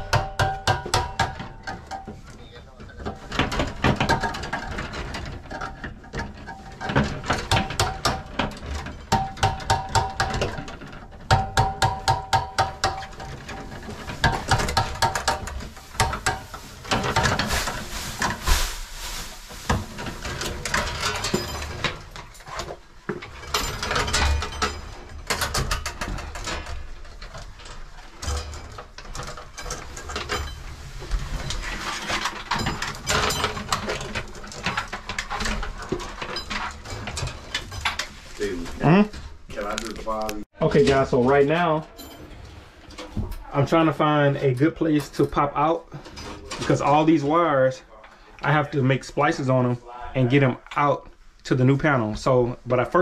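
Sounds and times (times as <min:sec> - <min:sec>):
rapid clicks and knocks: 0:00.0 - 0:18.7, 0:19.5 - 0:38.3
wires rattling and scraping metal: 0:00.0 - 0:53.0.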